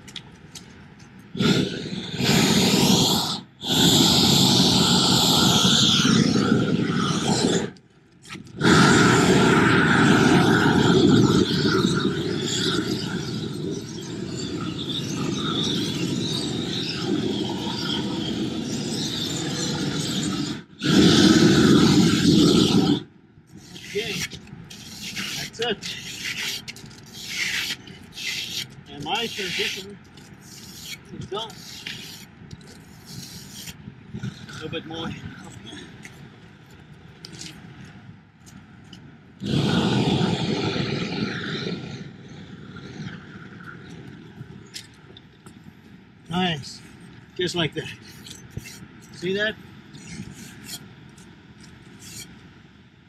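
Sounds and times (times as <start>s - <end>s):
roofing torch blasting: 1.4s - 7.8s
membrane scraping and rubbing: 23.6s - 34.8s, 48.0s - 49.3s, 50.0s - 52.4s.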